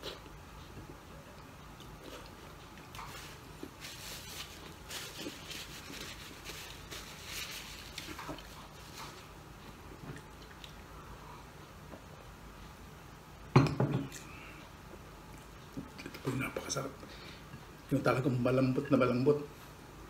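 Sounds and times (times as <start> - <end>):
paper napkin rustling: 3.0 - 9.3.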